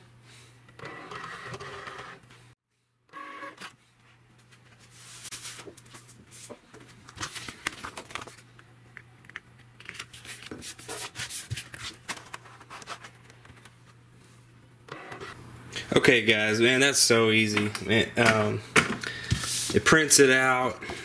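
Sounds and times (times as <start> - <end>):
vinyl sheet rustling and scraping: 4.1 - 8.5, 9.8 - 14.4.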